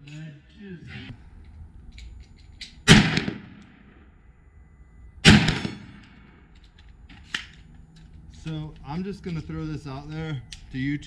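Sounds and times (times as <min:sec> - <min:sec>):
rifle shot echoing: 0:02.8 - 0:04.0, 0:05.2 - 0:06.5.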